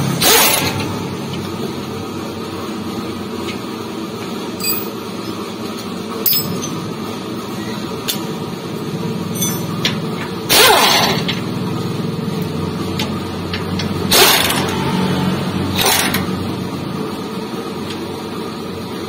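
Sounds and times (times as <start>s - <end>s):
steady mechanical hum: 0.0s - 19.0s.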